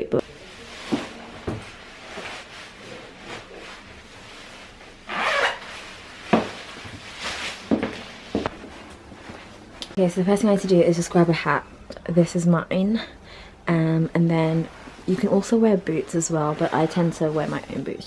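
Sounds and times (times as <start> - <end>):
clothing and boot rustling: 0.5 - 10.0.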